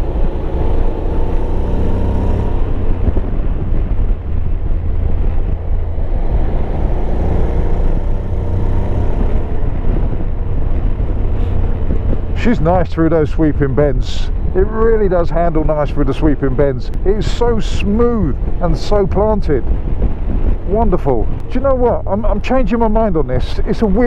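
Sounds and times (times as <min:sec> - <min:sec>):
motorcycle engine cruising: 0:00.0 - 0:15.6
wind rushing on microphone: 0:00.0 - 0:24.0.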